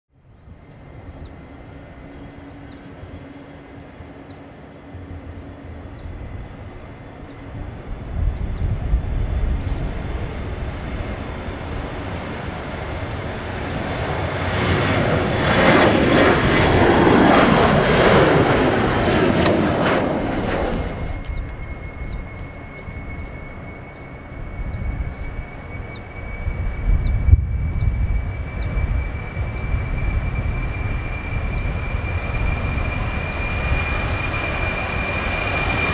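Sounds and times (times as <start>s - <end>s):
jet airliner taking off: 0.2s - 35.9s.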